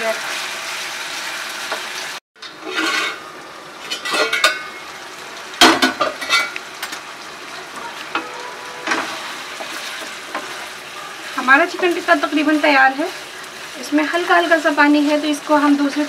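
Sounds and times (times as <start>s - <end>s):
chicken sizzling in oil: 0.0s - 16.0s
spatula scraping pan: 2.4s - 3.3s, 8.1s - 13.8s.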